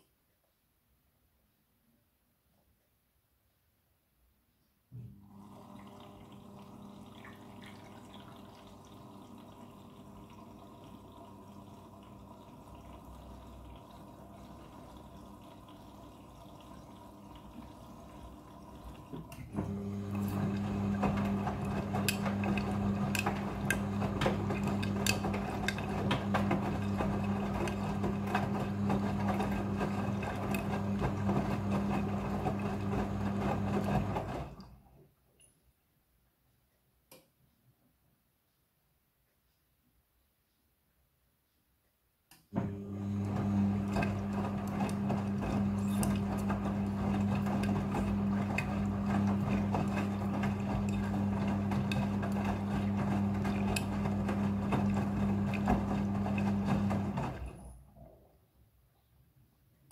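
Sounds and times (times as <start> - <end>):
washing machine hum: 4.9 - 35.1, 42.5 - 58.4
water running: 5.2 - 34.8, 42.6 - 57.6
drum motor hum: 18.2 - 34.5, 42.6 - 57.5.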